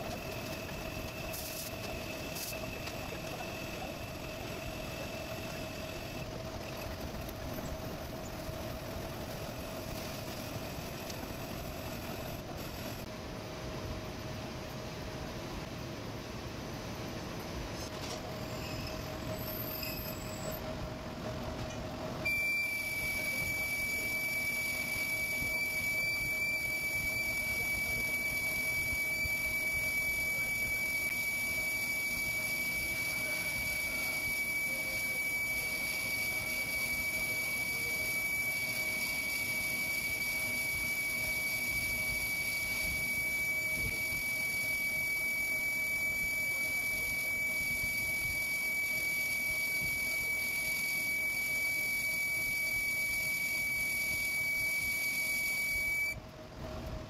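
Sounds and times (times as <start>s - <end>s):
high-pitched cutting whistle: 0.0s - 13.1s, 18.4s - 20.6s, 22.2s - 56.2s
lathe running: 0.0s - 13.1s.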